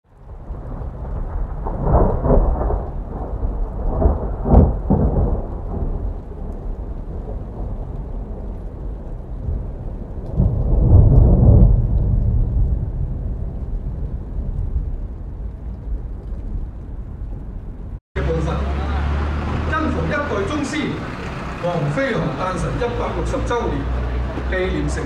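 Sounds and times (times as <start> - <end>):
steady rain: 0.0 - 25.0
rolling thunder: 0.1 - 18.0.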